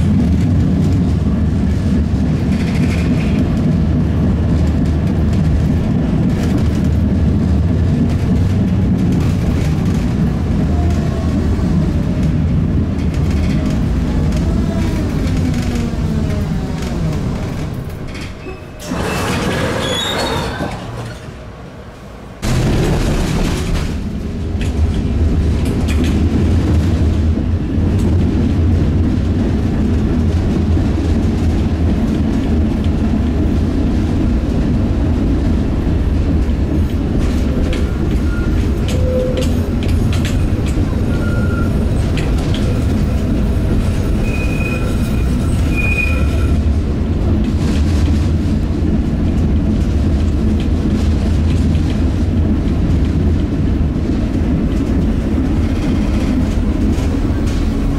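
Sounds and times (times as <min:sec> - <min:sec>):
tram wheels rumbling on rails: 0:00.0 - 0:57.9
high wheel squeals: 0:18.3 - 0:21.3, 0:37.8 - 0:39.5, 0:40.9 - 0:42.1, 0:44.1 - 0:46.6.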